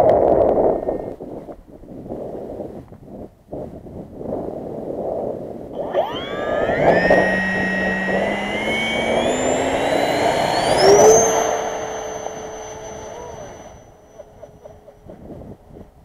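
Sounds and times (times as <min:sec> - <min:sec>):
wind noise on microphone: 0:00.0 - 0:16.0
electric ducted fan whine: 0:05.7 - 0:15.2.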